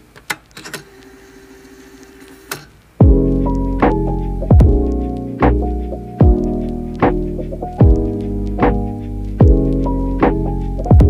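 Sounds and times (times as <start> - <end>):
kick drum: 3.0 - 5.6, 6.2 - 7.2, 7.8 - 11.0
keyboard chords: 3.0 - 11.0.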